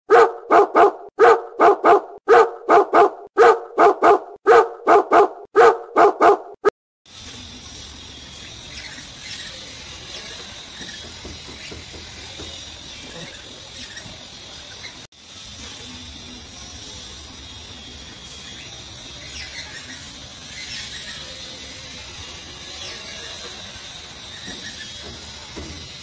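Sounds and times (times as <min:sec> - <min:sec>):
dog barking loudly: 0:00.0 - 0:06.7.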